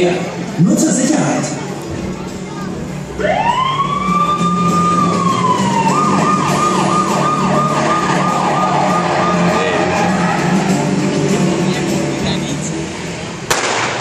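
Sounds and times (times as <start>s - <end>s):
emergency siren wailing and yelping: 3.2s - 11.1s.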